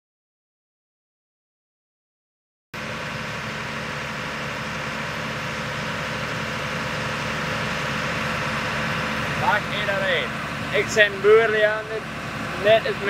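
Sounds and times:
engine idling: 2.8s - 13.0s.

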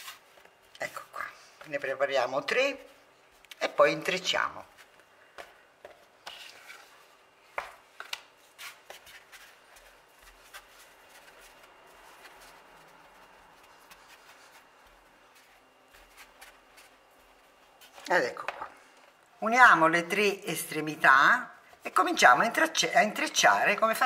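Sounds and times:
hands rubbing dough: 0.0s - 18.5s.

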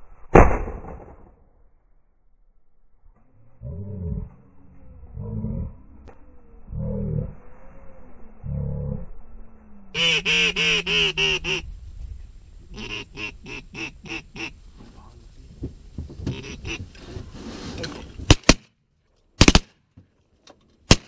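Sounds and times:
shotgun blasts: 0.3s - 1.4s, 18.3s - 18.7s, 19.4s - 19.7s
duck quacking calls: 10.0s - 11.6s, 12.7s - 14.6s, 16.3s - 16.8s.

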